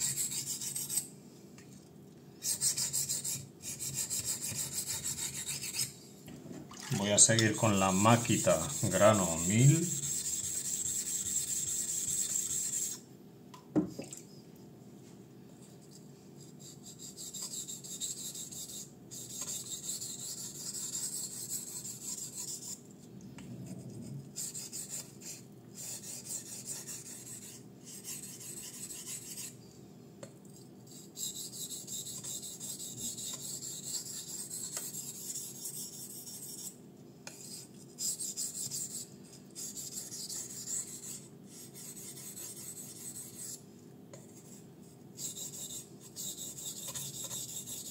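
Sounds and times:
knife scraping on whetstone: 0:00.0 - 0:01.1, 0:08.2 - 0:13.0, 0:45.2 - 0:47.9.

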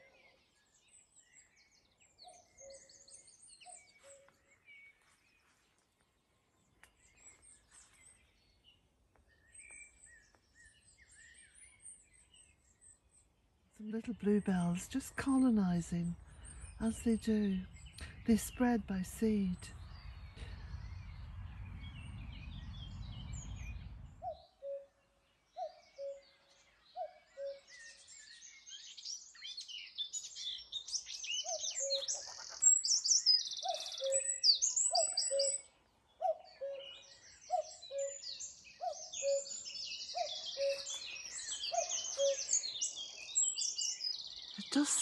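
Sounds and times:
songbirds trilling and chirping: 0:00.0 - 0:45.0
low rumble: 0:16.2 - 0:24.3
cuckoo calling: 0:24.2 - 0:25.0, 0:25.6 - 0:26.3, 0:27.0 - 0:27.7, 0:31.4 - 0:45.0.

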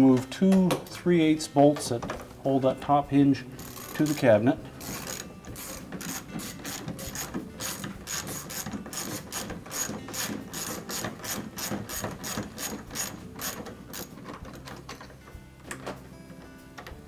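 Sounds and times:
socket ratchet clicking: 0:03.6 - 0:16.0.

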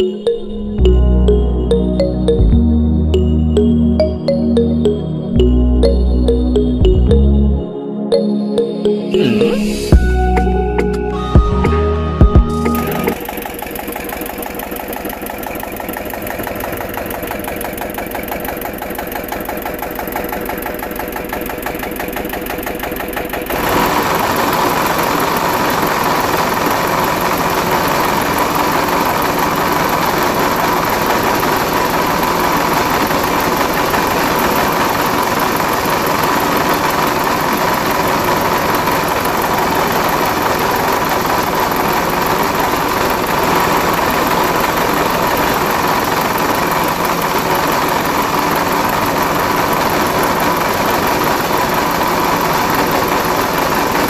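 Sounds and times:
grinding machine motor rattling: 0:13.1 - 0:54.0.

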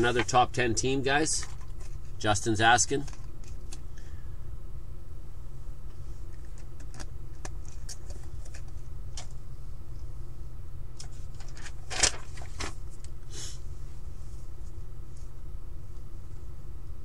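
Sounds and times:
low hum: 0:00.0 - 0:17.0
small clicks and handling noises: 0:03.0 - 0:03.8, 0:06.2 - 0:09.4
paper rustling: 0:11.0 - 0:13.1.

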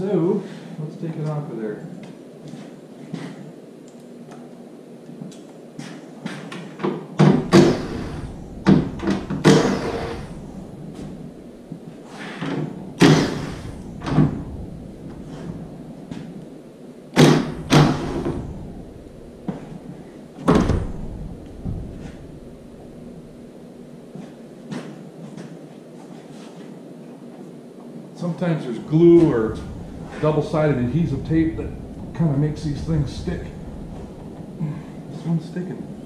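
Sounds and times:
trunk lid thud: 0:20.4 - 0:22.4.

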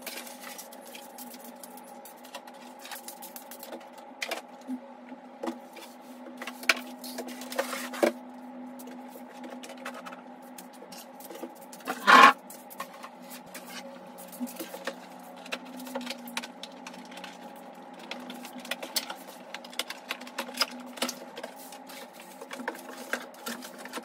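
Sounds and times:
items clicking and knocking on desk: 0:08.8 - 0:24.0
scrape or clatter: 0:11.8 - 0:12.4.

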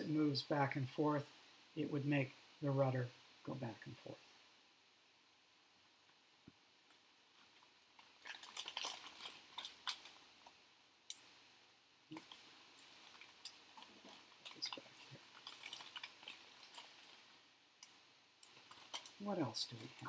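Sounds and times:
plastic bag crinkling: 0:07.4 - 0:10.5, 0:12.1 - 0:17.4, 0:18.4 - 0:20.0.

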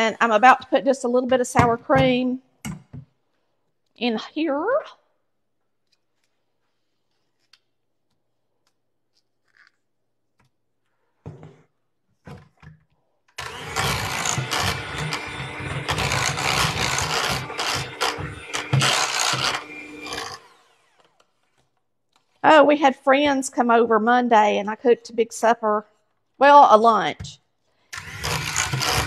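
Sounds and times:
electric hand mixer motor hum: 0:13.4 - 0:21.3, 0:28.0 - 0:29.0.

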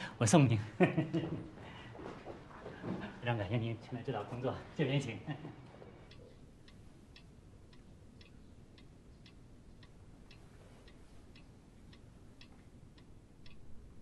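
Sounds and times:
wall clock ticking: 0:03.1 - 0:14.0.

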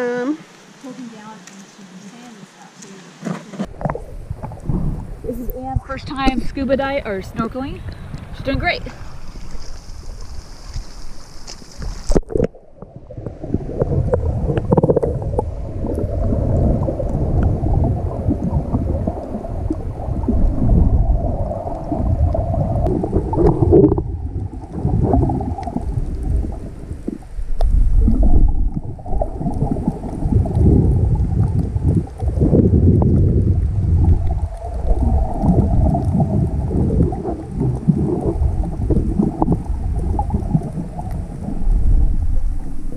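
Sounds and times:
water sloshing: 0:00.0 - 0:32.4
underwater rumbling and gurgling: 0:03.6 - 0:42.9.

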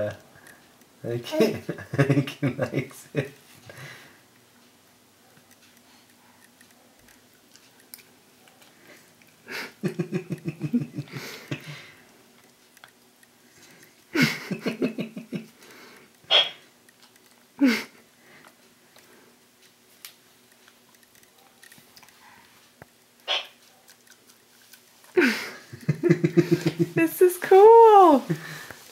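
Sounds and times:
faint chewing sounds: 0:00.1 - 0:01.0, 0:03.3 - 0:14.5, 0:15.4 - 0:26.0.

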